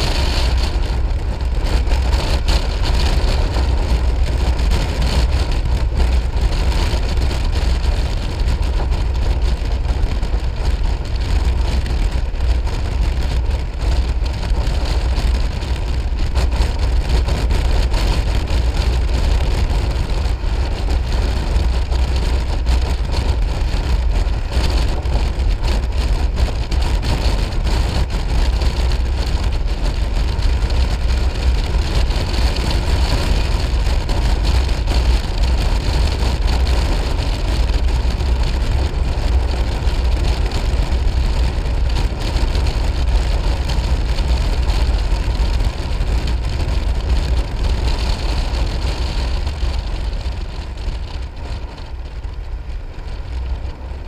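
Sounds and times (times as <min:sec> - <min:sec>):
scooter engine and wind rumble: 0:00.0 - 0:54.0.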